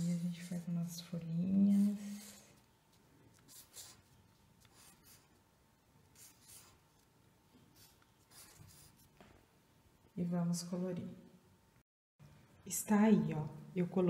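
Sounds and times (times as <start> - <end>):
pen scratching on paper: 0.0 - 2.7, 3.3 - 5.4, 6.1 - 7.0, 7.7 - 9.1.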